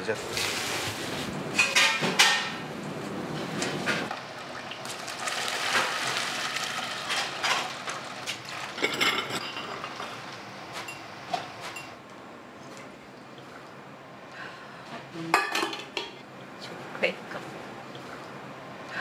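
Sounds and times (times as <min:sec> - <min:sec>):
metal pots and utensils clinking: 0:01.6 - 0:02.6, 0:08.5 - 0:10.1, 0:15.4 - 0:16.2
liquid splashing and pouring: 0:04.2 - 0:08.8.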